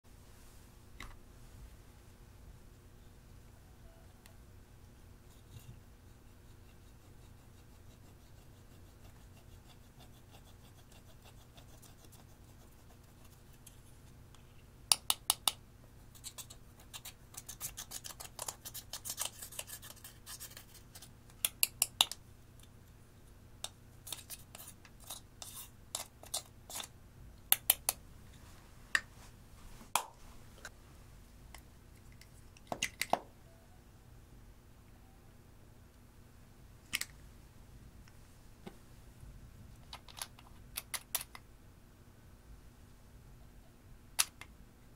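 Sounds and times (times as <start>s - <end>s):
metal tool scraping powder: 24.1s - 26.9s.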